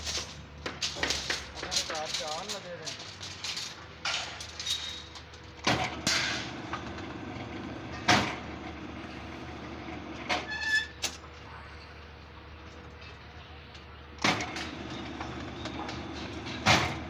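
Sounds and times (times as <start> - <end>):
metal clanks of rebar: 0.0 - 7.1, 14.2 - 17.0
bending machine motor running: 5.7 - 10.3, 14.2 - 17.0.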